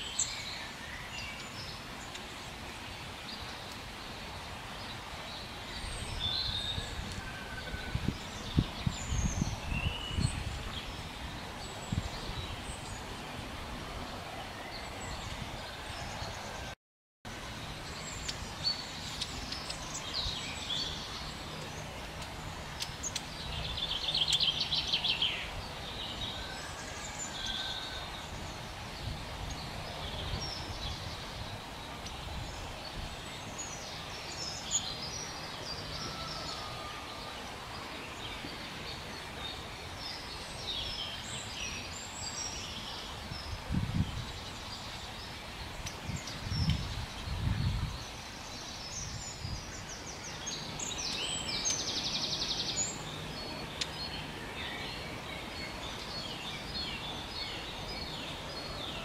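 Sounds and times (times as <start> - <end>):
birds calling and singing: 0.0 - 16.8, 17.5 - 59.0.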